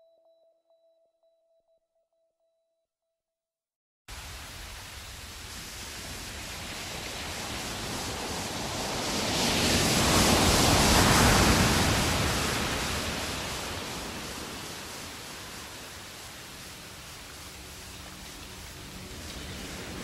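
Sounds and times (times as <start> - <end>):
rushing noise: 4.1 - 20.0.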